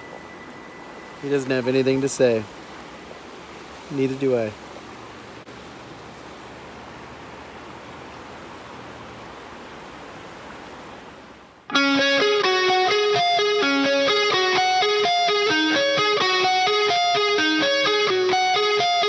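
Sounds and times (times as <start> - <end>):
creek water rushing: 0.0 - 19.0
picked guitar melody: 11.7 - 19.0.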